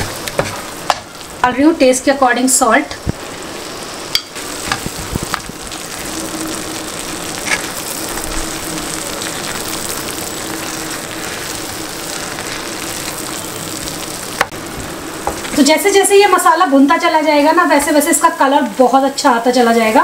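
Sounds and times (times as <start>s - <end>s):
masala sizzling on a pan: 0.0s - 20.0s
spatula scraping pan: 7.4s - 7.7s.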